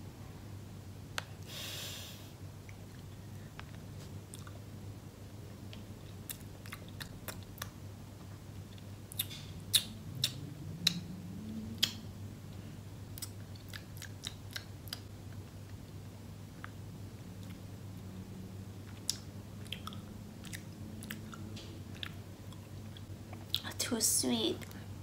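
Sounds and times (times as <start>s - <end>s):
wet mouth clicks chewing: 4.3s - 4.6s, 5.7s - 7.8s, 8.7s - 11.0s, 11.8s - 12.0s, 13.2s - 15.4s, 18.8s - 23.6s.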